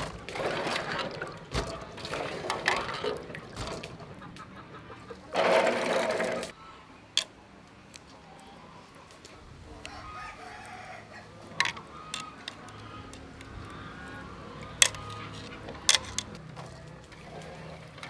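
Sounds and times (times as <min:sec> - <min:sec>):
fruit clinking against metal basin: 0:00.0 - 0:04.2, 0:11.5 - 0:16.4
water sloshing in a metal basin: 0:00.0 - 0:06.6, 0:11.4 - 0:18.0
hens clucking: 0:00.0 - 0:07.2, 0:08.0 - 0:18.0
rooster crowing: 0:09.8 - 0:14.5.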